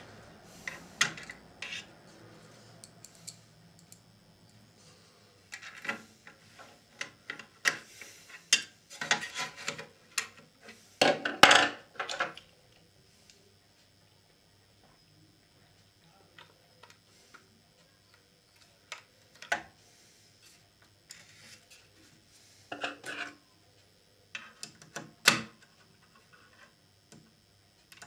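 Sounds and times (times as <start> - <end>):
stand rubbing and clattering: 5.5 - 9.9.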